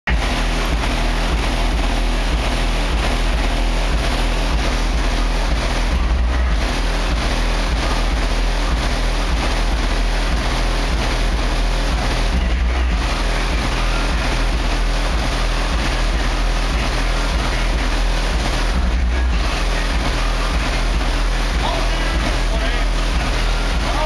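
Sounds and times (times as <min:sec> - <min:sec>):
dense noisy rush: 0:00.0 - 0:24.0
subwoofers pounding deep bass: 0:00.0 - 0:24.0.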